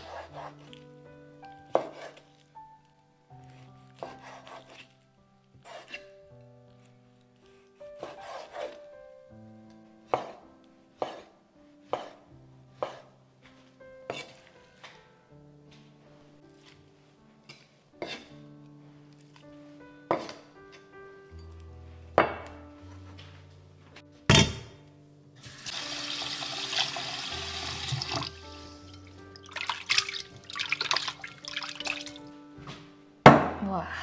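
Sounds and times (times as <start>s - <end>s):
background music: 0.0s - 34.0s
kitchen tap running: 25.4s - 32.2s
splashing while rinsing: 25.4s - 32.2s.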